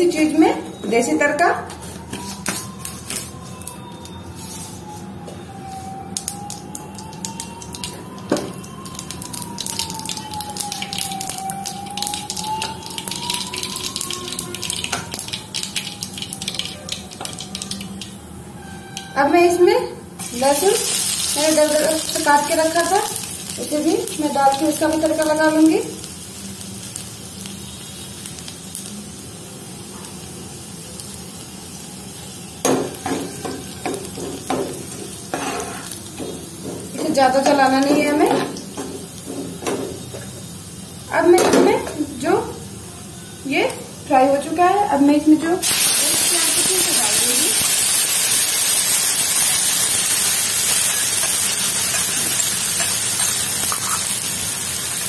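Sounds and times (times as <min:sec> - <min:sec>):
seeds popping in hot oil: 0:06.1 - 0:18.2, 0:20.2 - 0:26.2, 0:45.6 - 0:55.0
spoon scraping and knocking pan: 0:32.7 - 0:40.0, 0:51.2 - 0:54.1.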